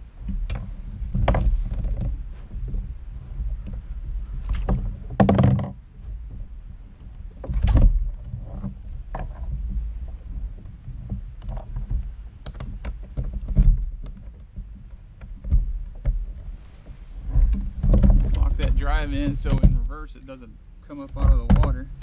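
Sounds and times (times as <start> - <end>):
water sloshing against hull: 0.1 - 22.0
boat knocks and clunks: 0.2 - 22.0
low rumble: 15.5 - 22.0.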